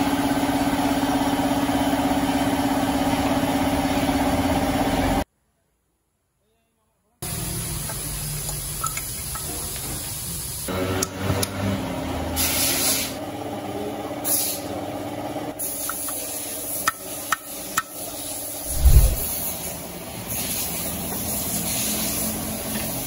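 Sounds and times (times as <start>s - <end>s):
steady hum: 18.6s - 19.3s.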